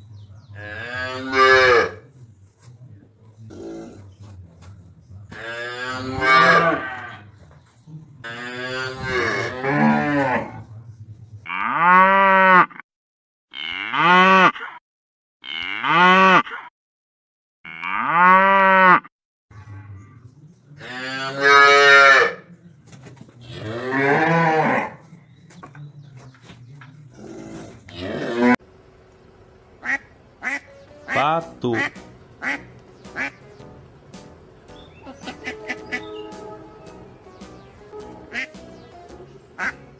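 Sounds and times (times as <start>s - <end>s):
cows mooing: 0.6s - 2.0s, 5.3s - 7.2s, 8.2s - 10.6s, 17.7s - 20.2s, 20.8s - 22.4s, 23.4s - 25.1s, 27.2s - 28.6s, 35.1s - 37.1s.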